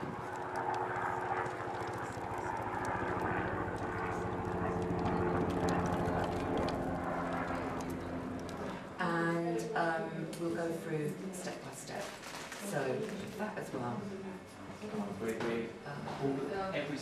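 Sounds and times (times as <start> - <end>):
engine drone: 0.0 - 9.0.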